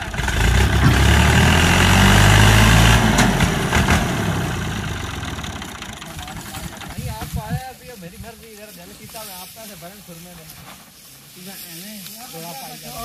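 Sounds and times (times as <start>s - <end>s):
tractor diesel engine: 0.0s - 10.2s.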